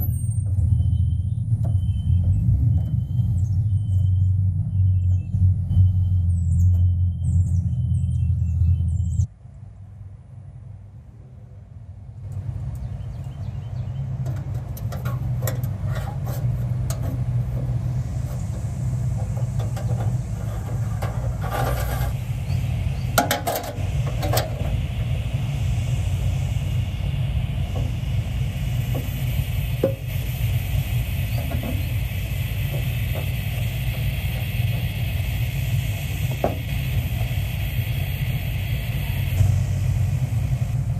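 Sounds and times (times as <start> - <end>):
low engine-like drone: 0.0 - 40.9
steady high hiss: 12.1 - 40.9.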